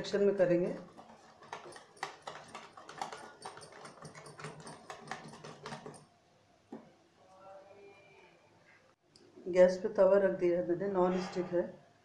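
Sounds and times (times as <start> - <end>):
whisk clicking against steel bowl: 0.0 - 6.1.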